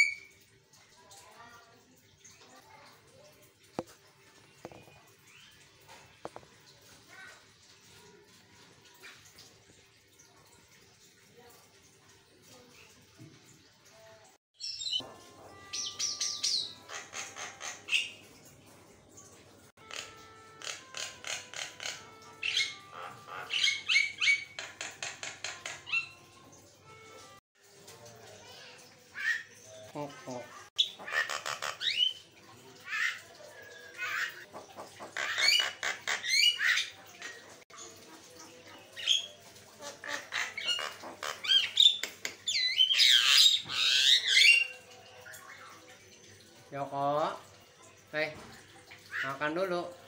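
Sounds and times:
myna bird calling: 19.9 - 26.2.

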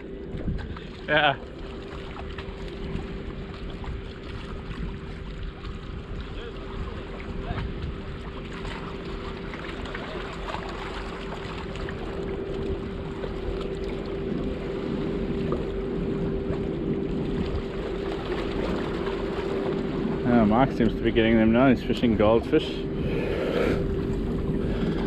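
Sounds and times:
boat engine drone: 0.0 - 25.0.

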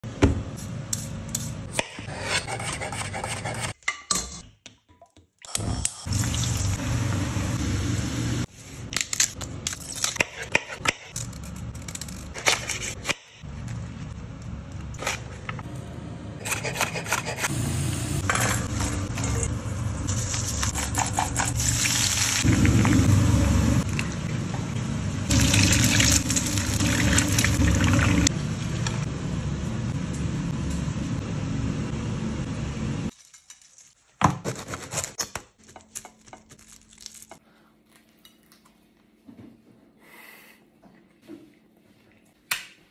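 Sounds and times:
vegetables sizzling in hot oil: 21.6 - 23.7.

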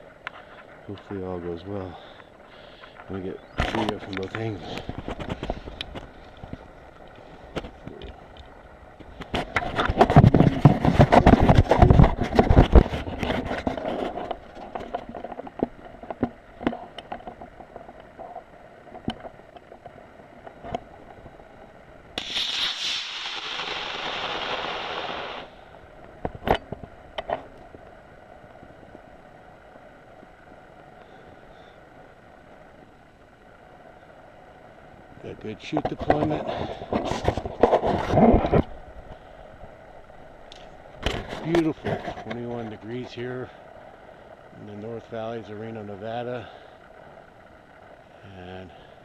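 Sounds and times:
crackling and rustling: 0.0 - 30.7, 35.2 - 48.0
rocket motor rushing hiss: 22.2 - 25.8.

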